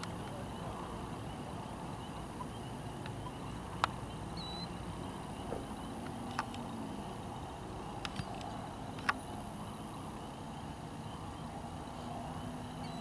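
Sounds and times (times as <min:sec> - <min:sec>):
low rumble and hiss: 0:00.0 - 0:13.0
high chirp: 0:00.3 - 0:06.0, 0:09.6 - 0:13.0
sharp clicks: 0:05.5 - 0:06.7, 0:08.0 - 0:09.3.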